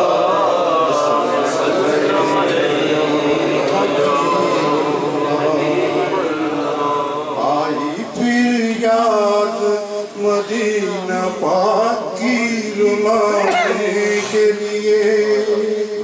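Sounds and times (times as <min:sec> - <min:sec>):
man singing into a microphone: 0:00.0 - 0:16.0.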